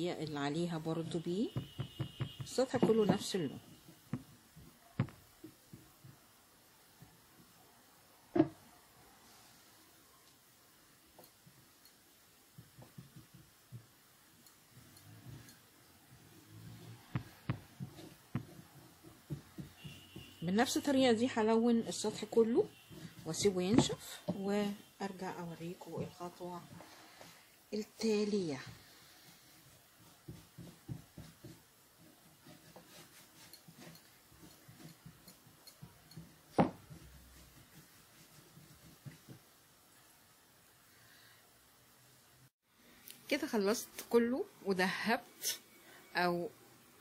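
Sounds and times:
brush tapping box: 1.0s - 6.2s, 17.0s - 20.9s, 22.0s - 24.5s, 29.7s - 39.4s
paintbrush soft thumps: 4.1s - 6.2s, 17.0s - 20.4s.

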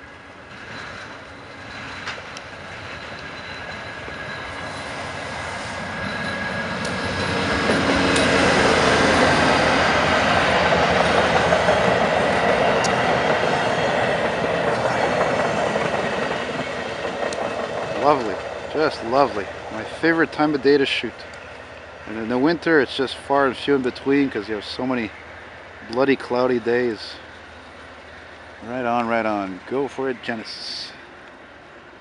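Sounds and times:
diesel locomotive roaring past: 0.0s - 32.0s
faint high squeal: 2.9s - 7.0s.

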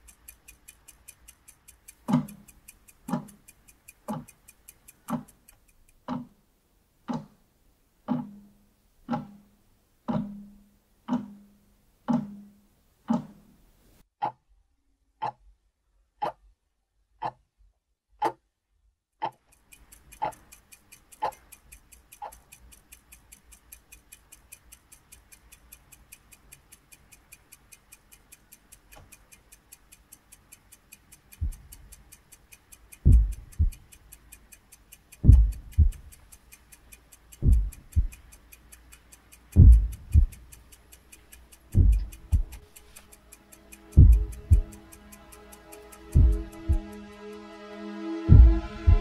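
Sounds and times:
fast even ticking: 0.0s - 13.6s, 19.2s - 47.5s, 48.3s - 49.0s
clock-like tick: 0.0s - 14.5s, 15.2s - 49.0s
deep double thump: 33.1s - 33.7s, 39.6s - 40.3s, 41.8s - 42.5s, 48.3s - 49.0s.

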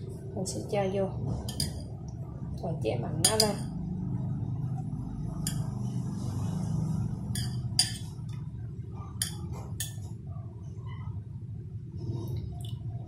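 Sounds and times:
steady low hum: 0.0s - 13.0s
metal spoon clinking on bowls: 1.5s - 1.9s, 3.2s - 3.8s, 5.4s - 5.8s, 7.3s - 8.4s, 9.2s - 10.1s.

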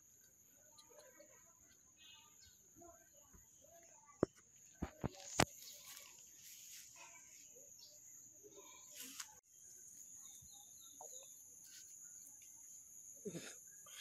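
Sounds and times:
bird chirps: 0.1s - 4.0s, 7.0s - 14.0s
insects chorus: 4.8s - 14.0s.

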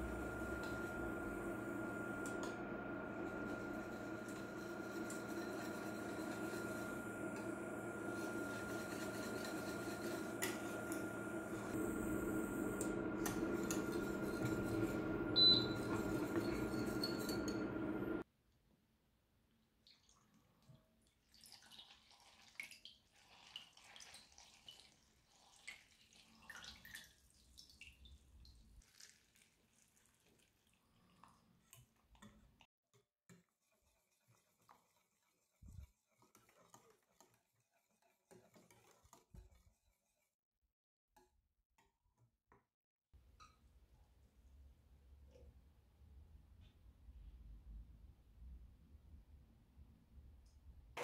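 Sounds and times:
steady hum: 0.0s - 18.2s
whisk stirring thick glaze: 3.2s - 11.8s, 12.8s - 17.7s, 33.3s - 40.4s.

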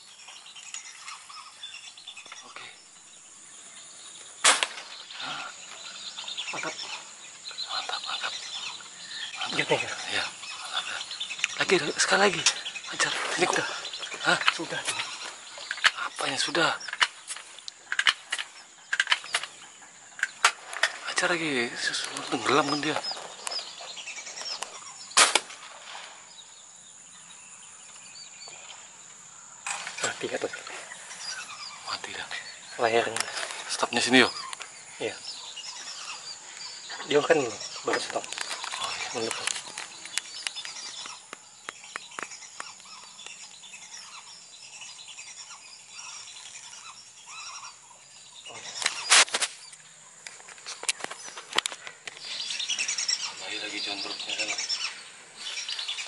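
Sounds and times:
air rifle shot: 4.4s - 4.9s, 25.2s - 25.7s.

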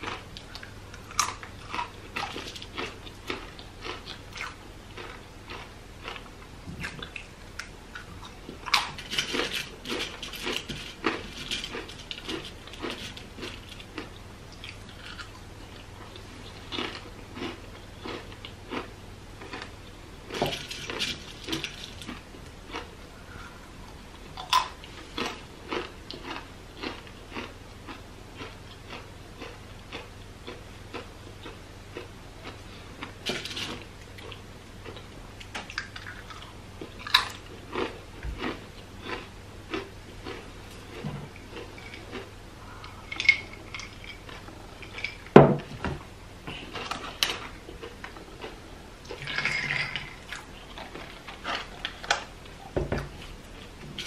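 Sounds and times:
crisp chips crunching: 0.0s - 6.3s, 7.0s - 15.4s, 16.0s - 19.7s, 20.3s - 22.9s, 24.4s - 27.5s, 35.7s - 45.4s, 46.5s - 52.4s.

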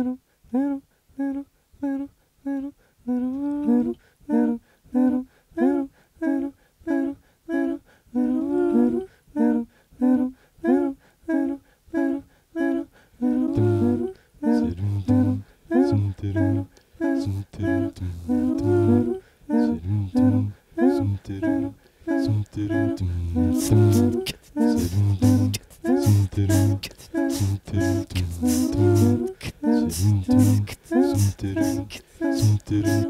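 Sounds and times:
wordless singing: 0.0s - 33.0s
looped hummed note: 22.2s - 33.0s
low hummed bass line: 22.3s - 24.2s, 24.8s - 26.8s, 27.4s - 29.3s, 30.0s - 31.8s.

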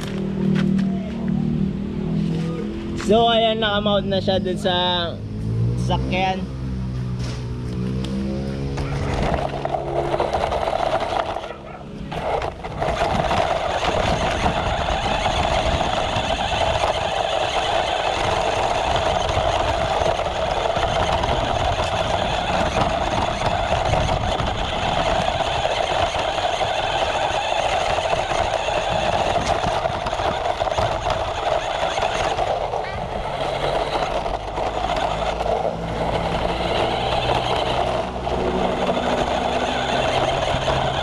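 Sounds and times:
small electric motor whining: 8.8s - 41.0s
tyres rattling over gravel: 8.8s - 41.0s.

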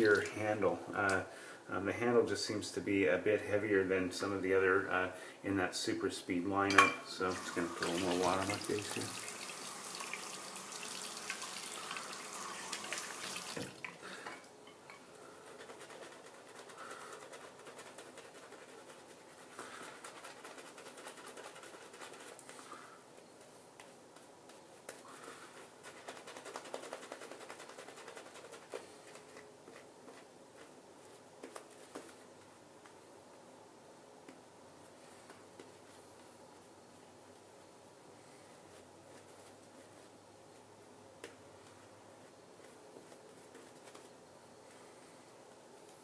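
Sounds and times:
tap running: 10.9s - 14.0s
shaving brush swishing: 15.4s - 22.5s.

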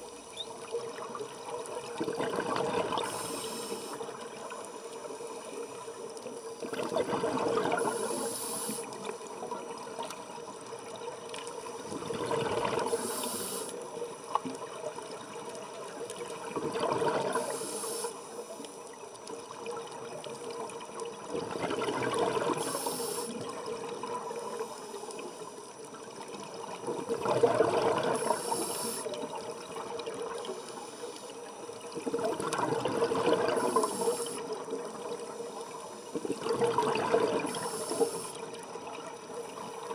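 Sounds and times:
bubbling exhaled air underwater: 0.9s - 4.2s, 6.6s - 9.1s, 11.8s - 13.7s, 16.2s - 18.0s, 21.2s - 24.4s, 26.7s - 30.6s, 31.9s - 35.2s, 36.1s - 38.8s
short high hiss: 7.8s - 9.0s, 12.9s - 13.8s, 22.6s - 23.4s.

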